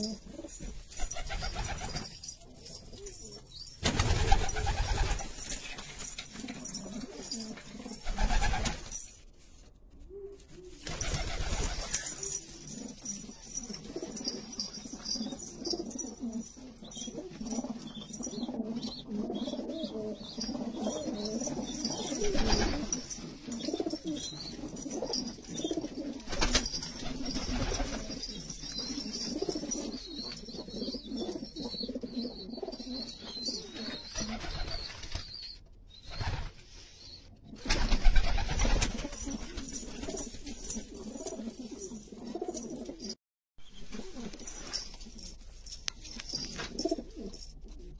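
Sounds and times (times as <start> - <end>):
wings flapping: 1.0 - 2.2, 3.8 - 7.4, 8.0 - 9.0, 10.8 - 12.4, 22.1 - 23.2, 26.2 - 28.3, 37.6 - 40.8
pigeons cooing: 10.1 - 34.8, 38.9 - 43.1, 46.3 - 47.9.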